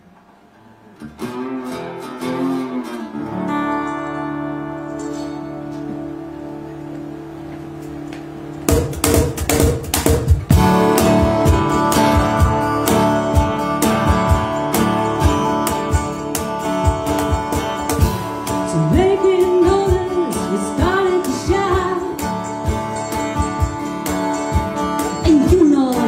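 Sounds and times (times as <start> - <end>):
live band playing: 1.1 - 26.0
woman singing: 18.6 - 22.3, 25.1 - 26.0.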